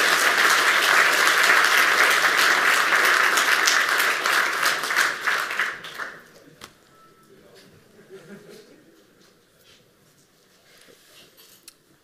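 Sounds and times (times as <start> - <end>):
audience applauding: 0.0 - 6.3.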